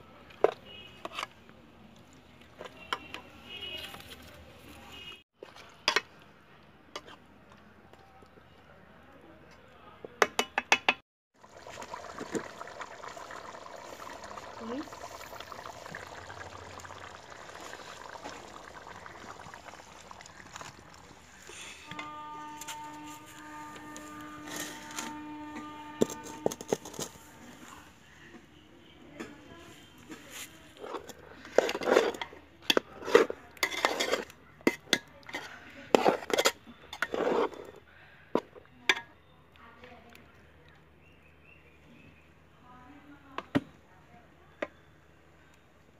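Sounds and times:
pot boiling with bubbling: 0:11.4 - 0:27.8, 0:30.2 - 0:37.6.

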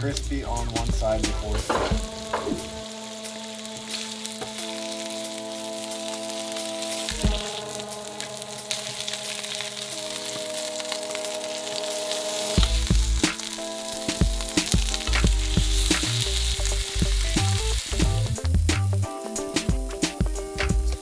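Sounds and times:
background music with bass beat: 0:00.0 - 0:03.3, 0:12.6 - 0:21.0
chicken sizzling in a frying pan: 0:00.0 - 0:21.0
spatula turning meat: 0:01.4 - 0:18.5.

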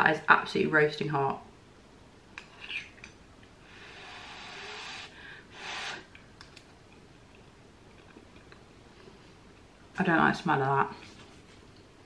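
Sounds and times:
breathy blowing on spoon: 0:03.7 - 0:06.1.

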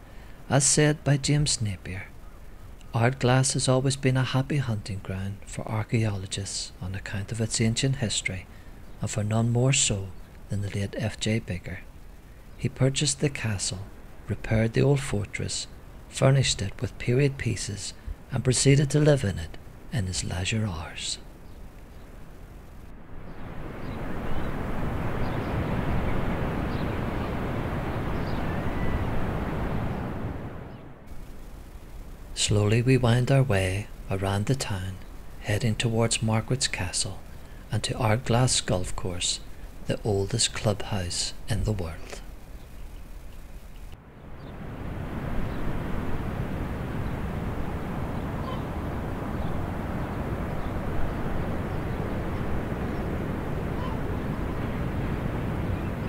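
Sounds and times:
low rumbling noise: 0:08.4 - 0:56.0
faint high chirps: 0:47.0 - 0:54.4.

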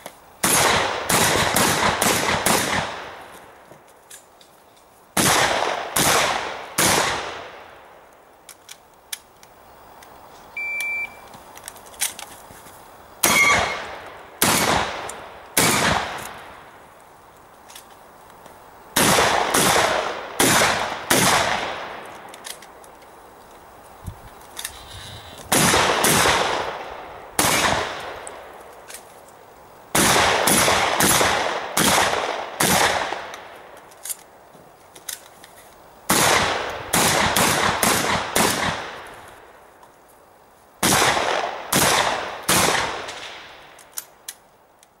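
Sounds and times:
shotgun shots with echo: 0:00.4 - 0:03.2, 0:05.2 - 0:07.6, 0:13.2 - 0:16.3, 0:19.0 - 0:22.0, 0:25.5 - 0:28.2, 0:29.9 - 0:33.3, 0:36.1 - 0:39.0, 0:40.8 - 0:43.6.

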